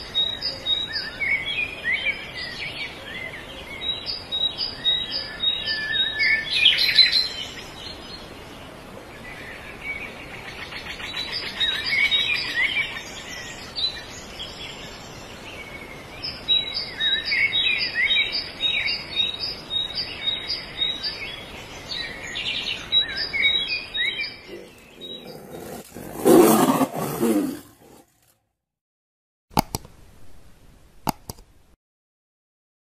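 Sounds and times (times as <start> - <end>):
birds chirping and calling: 21.9 - 28.0.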